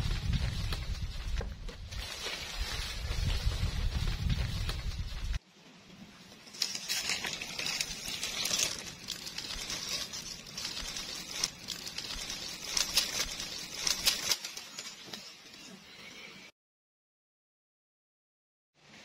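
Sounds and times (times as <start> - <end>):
rustling and crackling: 0.0 - 15.8.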